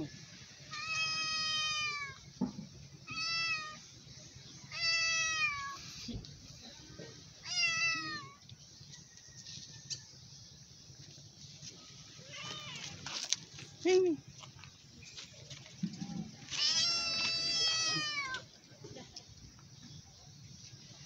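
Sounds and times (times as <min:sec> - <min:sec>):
cat meowing: 0:00.7 - 0:02.2, 0:03.1 - 0:03.8, 0:04.7 - 0:05.9, 0:07.4 - 0:08.4, 0:16.5 - 0:18.4.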